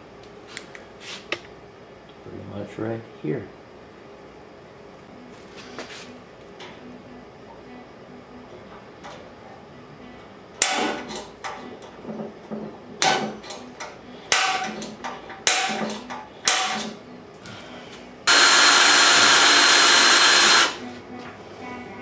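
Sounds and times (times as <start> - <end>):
power tool running: 18.2 - 20.9.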